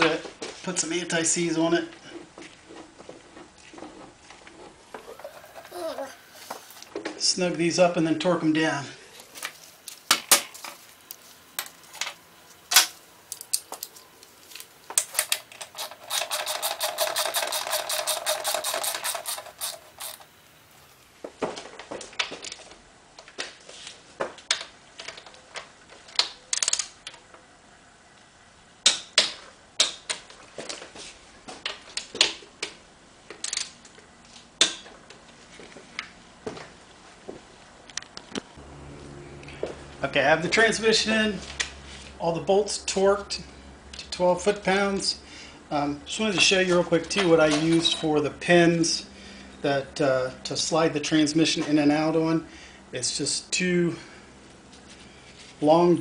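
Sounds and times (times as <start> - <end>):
socket ratchet clicking: 15.0 - 20.3.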